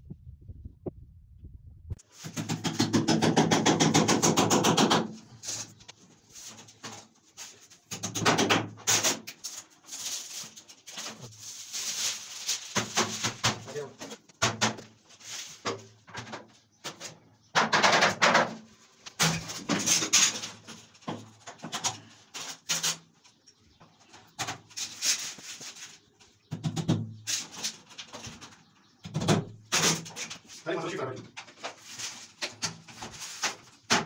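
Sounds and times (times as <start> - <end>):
plastic panels scraping: 2.1 - 23.1, 29.2 - 34.0.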